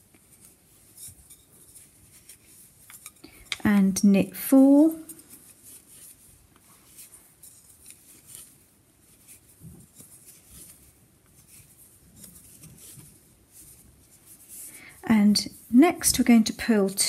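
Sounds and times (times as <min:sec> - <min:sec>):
knitting needles clicking: 0:02.9 - 0:04.0.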